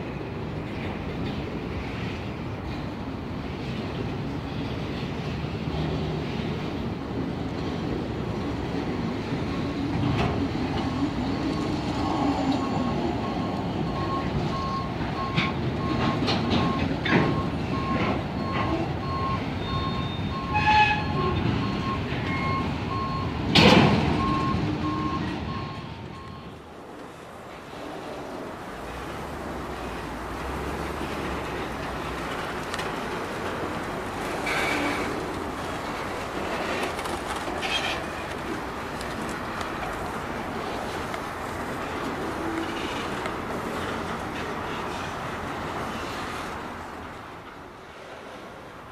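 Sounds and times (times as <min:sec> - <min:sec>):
freight train rolling past: 0:00.0 - 0:48.9
back-up alarm beeping: 0:12.6 - 0:23.4, 0:24.2 - 0:26.6.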